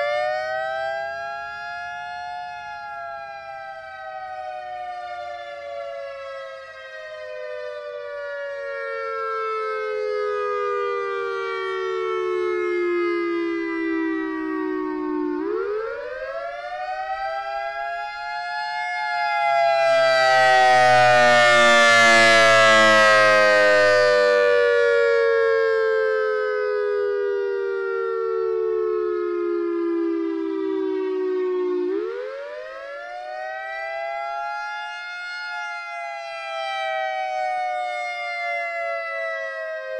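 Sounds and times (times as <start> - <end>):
warning siren wailing: 0.0 - 39.9.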